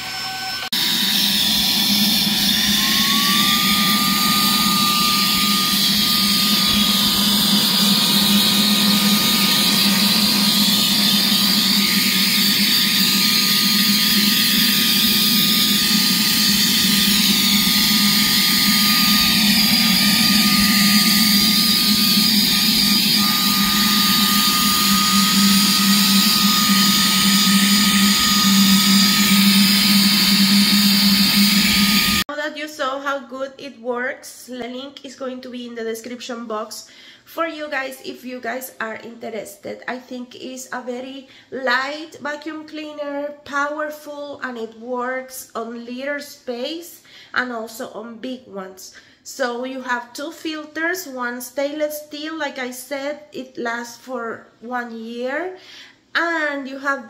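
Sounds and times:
handheld vacuum cleaner whine: 0.0 - 32.3.

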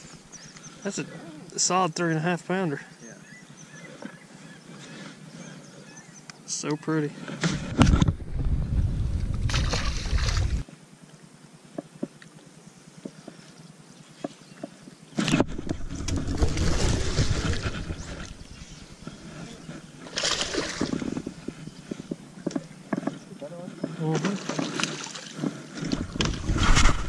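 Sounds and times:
low rumbling noise: 7.6 - 10.6
fish splashing in water: 9.5 - 10.6, 20.0 - 21.1.

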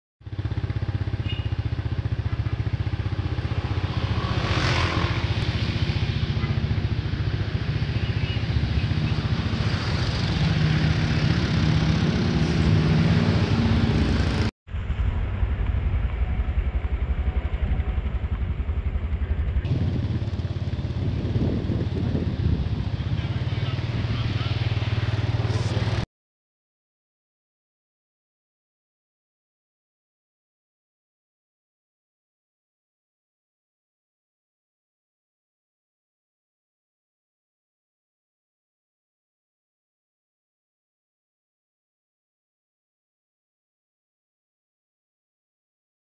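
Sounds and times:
diesel engine idling: 14.7 - 26.0.

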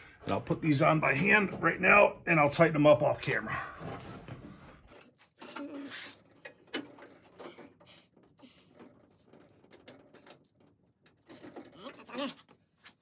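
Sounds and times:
bolts and nuts rattling: 4.9 - 12.7.

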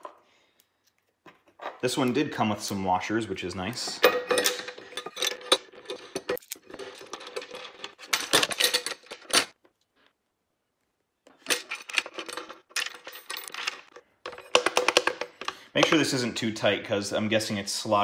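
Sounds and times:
steel bolts clinking: 3.8 - 9.6.

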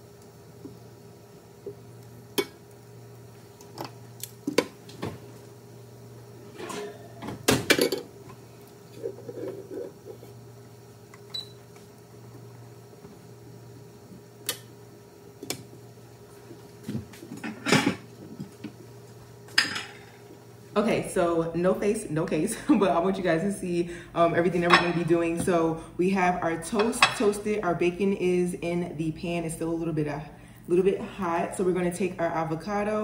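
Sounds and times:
steady low hum: 0.0 - 33.0
kitchen clatter: 6.5 - 8.1, 24.6 - 25.5.

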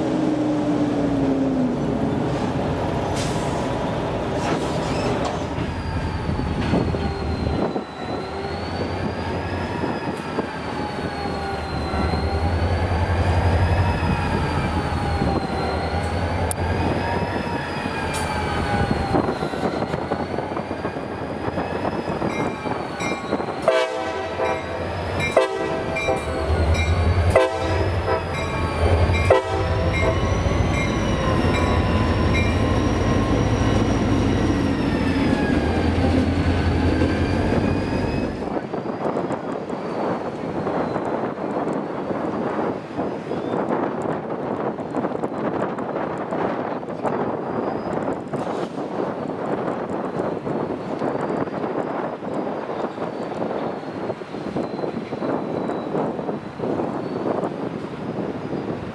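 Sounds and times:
train rumbling: 0.0 - 58.9
wheel squeal: 4.4 - 13.1, 47.1 - 48.2, 51.9 - 57.3.

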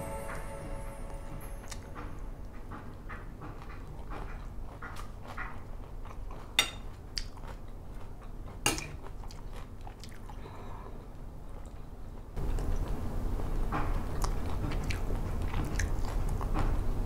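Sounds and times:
close chewing: 3.1 - 10.4, 12.4 - 13.1, 14.0 - 16.8.

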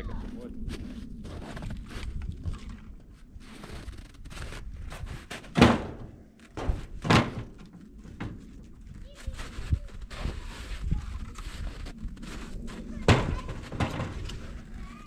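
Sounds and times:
wood clattering: 5.2 - 8.7, 13.0 - 14.7.

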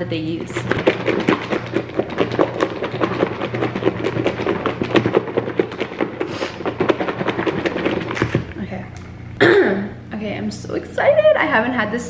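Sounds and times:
salad rattling in plastic bowl: 0.6 - 8.5.

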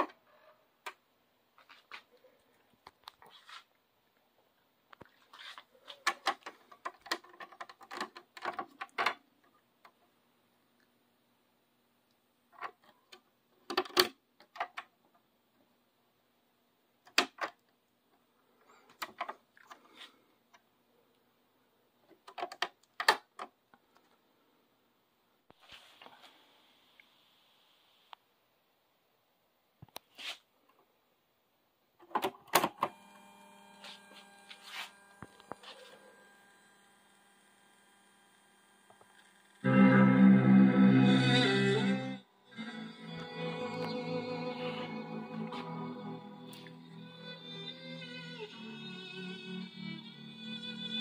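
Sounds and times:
faint steady hum: 30.6 - 47.7.

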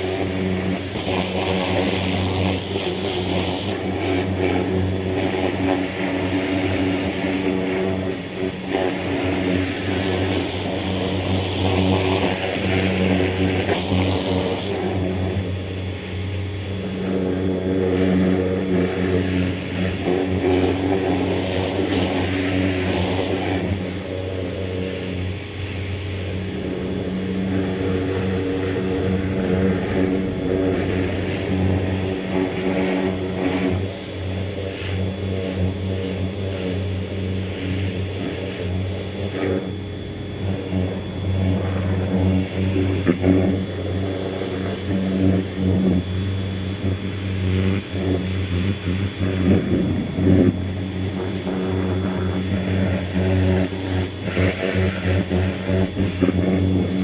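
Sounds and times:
pressure washer motor hum: 0.0 - 57.0.

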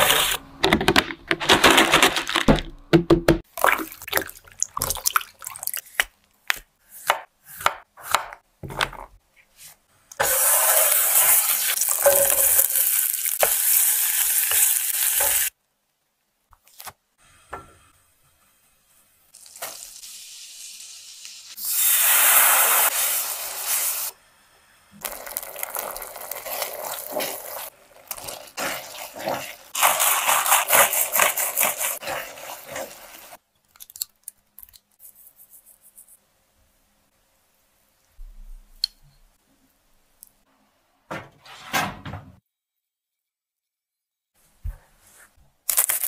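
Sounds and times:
sauce bubbling and sizzling: 18.4 - 24.2, 24.9 - 33.4
spatula stirring and scraping: 25.1 - 33.4.

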